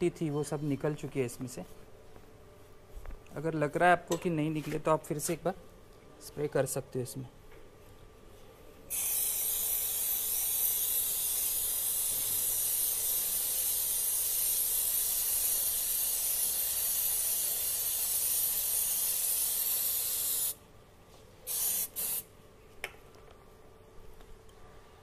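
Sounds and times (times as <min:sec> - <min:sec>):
aerosol spray hissing: 0:08.9 - 0:20.6, 0:21.5 - 0:22.3.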